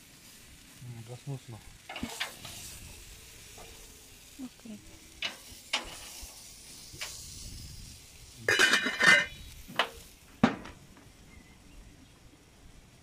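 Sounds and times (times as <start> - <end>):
pot lid clanging: 8.5 - 9.4.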